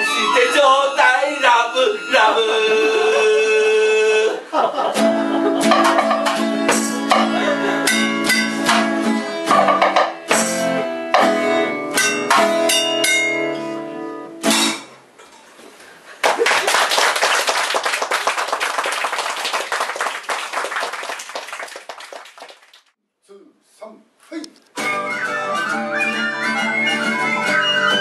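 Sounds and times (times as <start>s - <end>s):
melodica: 0.0s - 4.0s, 24.8s - 28.0s
acoustic guitar strums: 5.0s - 15.0s
hand drum hits: 5.7s - 7.4s, 8.2s - 10.6s
audience applauding: 16.2s - 22.9s.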